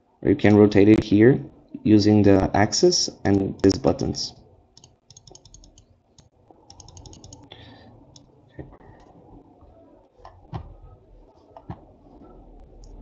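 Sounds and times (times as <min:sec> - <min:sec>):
low room hum: 0:00.0 - 0:13.0
computer mouse clicking: 0:04.8 - 0:09.2.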